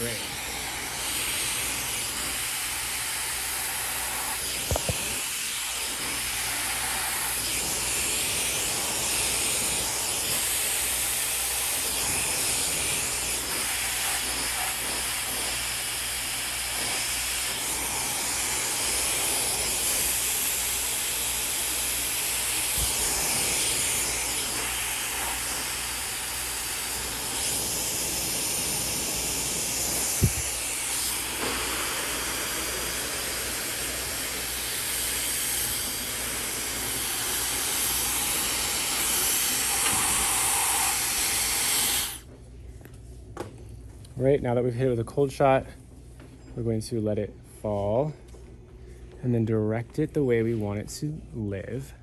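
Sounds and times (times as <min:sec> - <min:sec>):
hair dryer blowing: 0:00.0 - 0:42.3
hair dryer clicks: 0:04.5 - 0:05.2.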